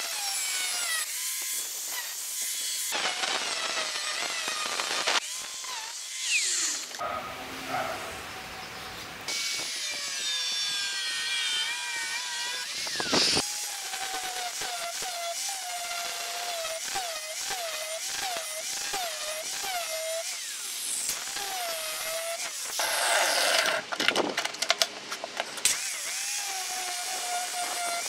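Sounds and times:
angle grinder grinding metal: 0.0s - 8.7s, 9.3s - 24.0s, 25.6s - 28.0s
sharp clicks and knocks: 23.6s - 25.8s.

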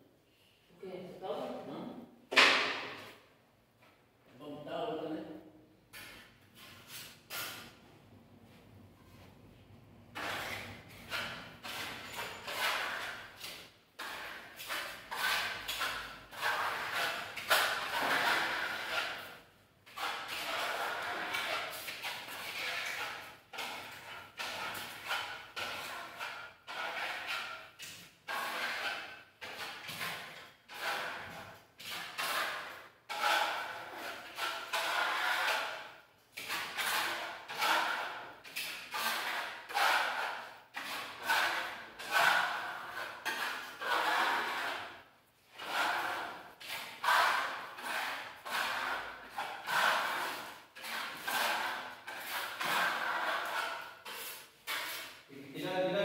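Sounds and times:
trowel scraping on wall: 5.9s - 7.8s, 10.1s - 55.3s.

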